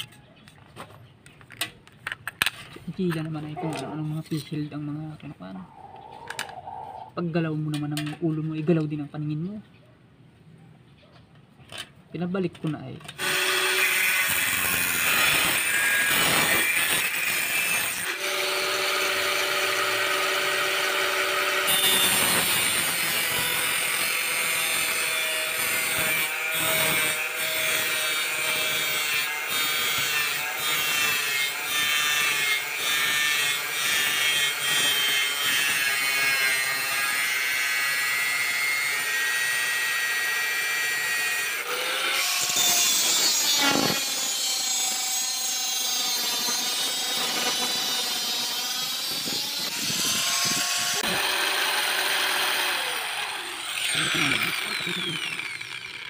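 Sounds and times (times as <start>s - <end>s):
angle grinder cutting tile trim: 13.1s - 56.0s.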